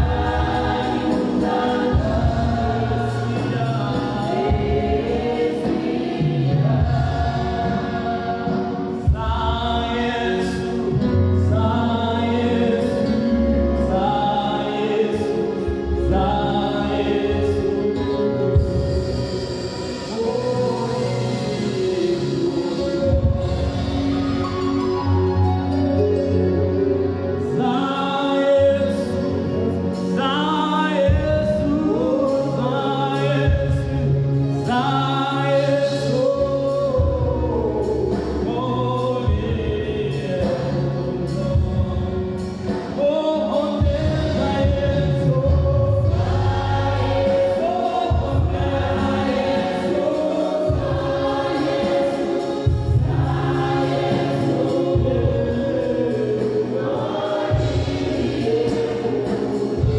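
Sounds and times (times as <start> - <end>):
bass line: 0.0 - 27.7, 43.8 - 59.9
gospel group singing: 0.0 - 59.9.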